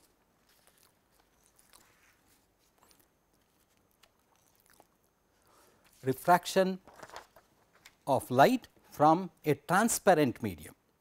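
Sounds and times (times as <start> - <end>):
papers rustling and clicking: 6.8 - 8.1.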